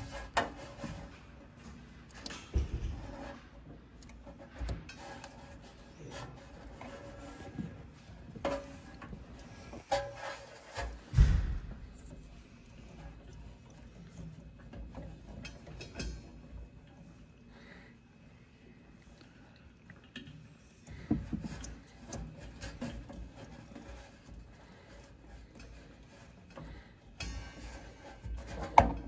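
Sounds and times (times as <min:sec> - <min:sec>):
clicks and knocks of handling: 0:00.0 - 0:17.0
wires rubbing on plastic: 0:02.9 - 0:11.2, 0:21.2 - 0:29.0.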